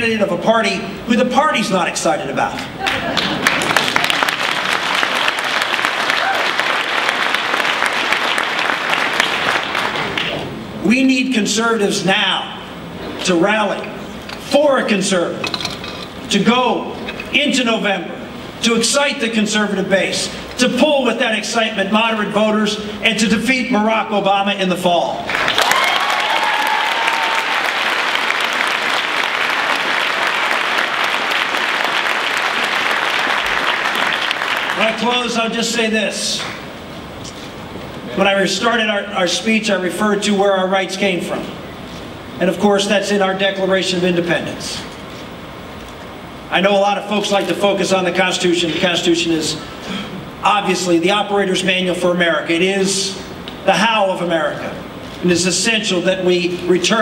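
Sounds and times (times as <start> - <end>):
audience applauding: 2.8 - 10.4, 25.3 - 35.0.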